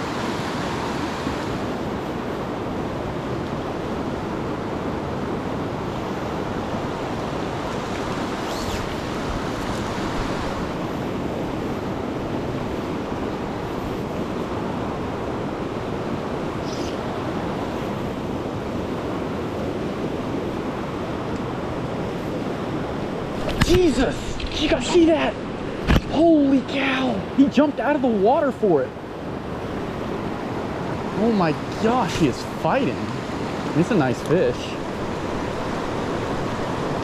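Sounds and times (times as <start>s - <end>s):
river rushing over rocks: 29.7s - 37.0s.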